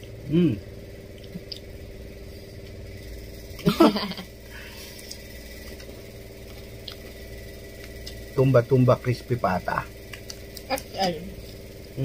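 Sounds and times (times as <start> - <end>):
low machine hum: 0.0 - 12.0
person murmuring while eating: 0.2 - 0.7.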